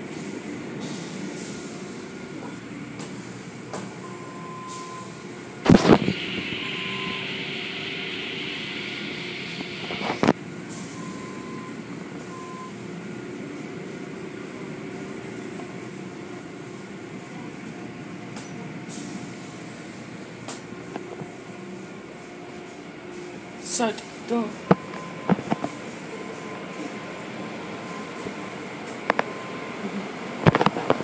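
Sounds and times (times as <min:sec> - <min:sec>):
car wash machinery hum: 0:00.0 - 0:31.0.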